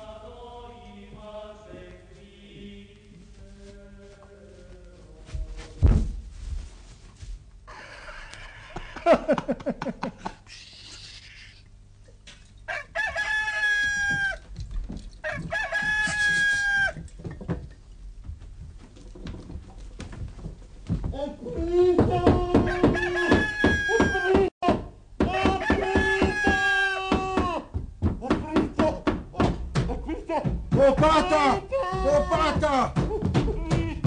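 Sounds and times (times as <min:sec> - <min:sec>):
loud thump: 0:05.8 - 0:06.3
rooster crowing: 0:07.7 - 0:09.2, 0:12.7 - 0:14.5, 0:15.2 - 0:17.0, 0:22.3 - 0:24.5, 0:25.3 - 0:27.5
men laughing: 0:07.7 - 0:10.5, 0:29.6 - 0:34.0.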